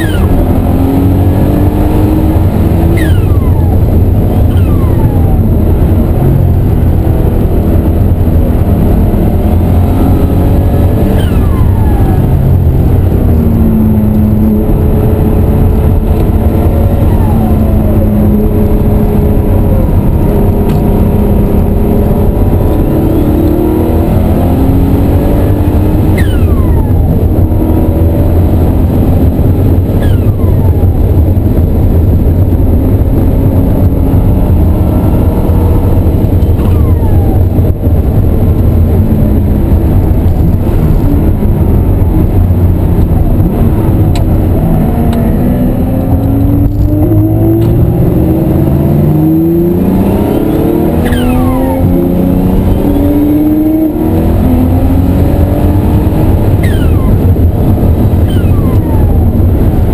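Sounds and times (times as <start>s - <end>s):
turbo whistle: 0.0s - 0.4s, 2.9s - 3.7s, 26.1s - 26.9s, 30.0s - 30.4s, 50.3s - 51.8s, 56.6s - 57.2s, 58.2s - 59.2s
race car engine revving: 0.0s - 59.9s.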